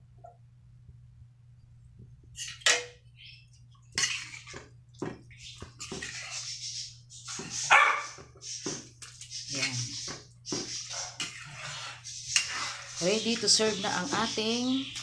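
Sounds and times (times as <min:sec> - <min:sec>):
metal spatula scraping wok: 0:04.0 - 0:04.6, 0:05.8 - 0:07.7, 0:09.3 - 0:15.0.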